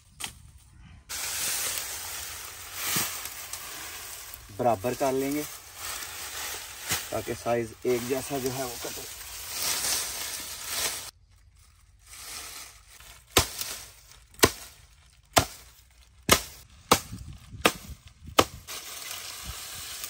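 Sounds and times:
dry reed stalks rustling: 0:00.0 - 0:20.0
blade chopping through stalks: 0:13.3 - 0:18.9.

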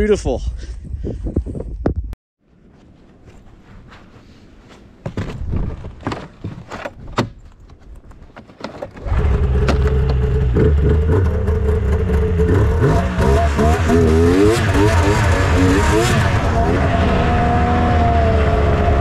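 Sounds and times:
knocks and clicks: 0:05.1 - 0:10.3
snowmobile engine running: 0:09.1 - 0:19.0.

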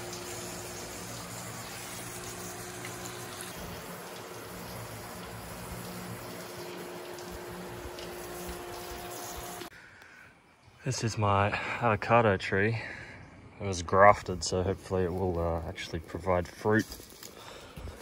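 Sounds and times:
running water rushing: 0:00.0 - 0:09.7.

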